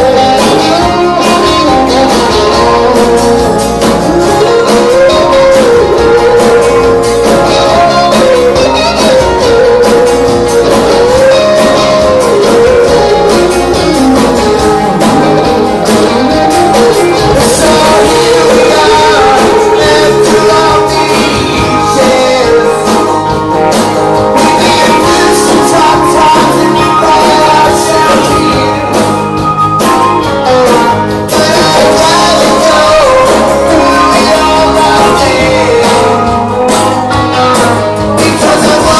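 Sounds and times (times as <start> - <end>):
man singing lead: 0.0 - 38.9
rock band playing: 0.0 - 38.9.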